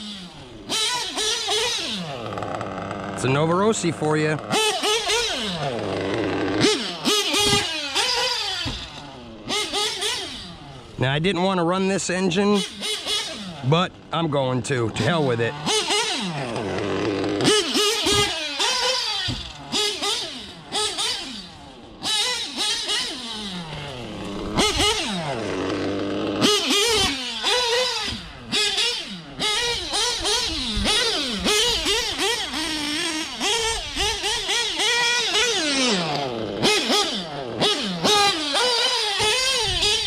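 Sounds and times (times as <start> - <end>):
model engine revving: 0.0 - 40.0.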